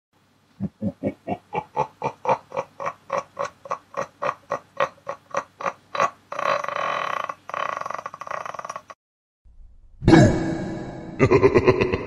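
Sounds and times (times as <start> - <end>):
person laughing: 0.6 - 9.0, 11.2 - 12.0.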